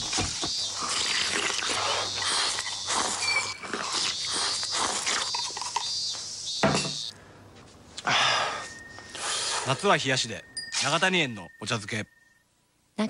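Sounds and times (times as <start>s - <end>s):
man slurping and crunching food: 0.6s - 5.9s.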